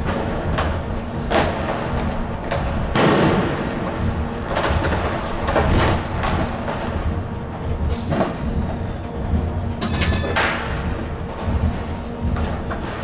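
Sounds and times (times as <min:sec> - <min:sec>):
firecrackers banging: 0:00.0 - 0:09.1
tram running rumble: 0:00.0 - 0:13.0.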